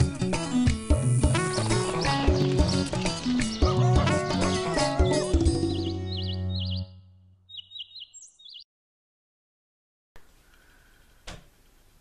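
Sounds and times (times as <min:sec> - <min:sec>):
instrumental music with bass and beat: 0:00.0 - 0:06.5.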